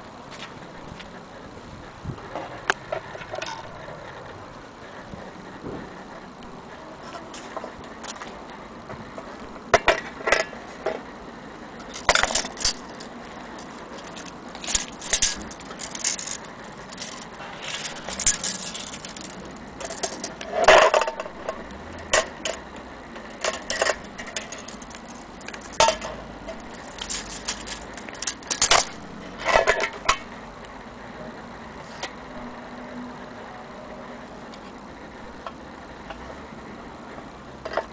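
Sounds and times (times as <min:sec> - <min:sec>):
clock parts clinking and rattling: 0:11.8 - 0:22.6, 0:23.2 - 0:30.3.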